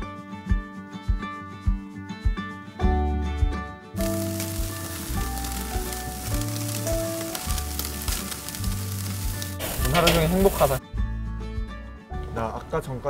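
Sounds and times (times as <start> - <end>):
soft background music: 0.0 - 13.0
ribs sizzling on grill: 4.0 - 10.8.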